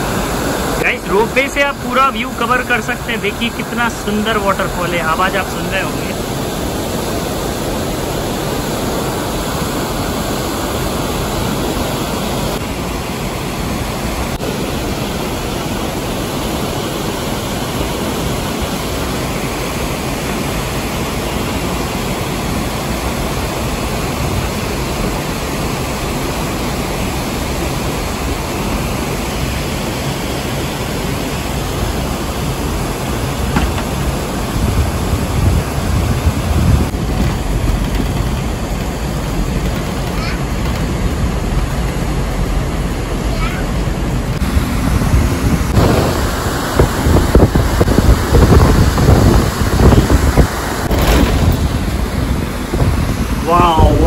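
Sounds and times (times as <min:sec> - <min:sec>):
waterfall roaring: 0:00.0 - 0:54.0
low rumbling: 0:31.6 - 0:54.0.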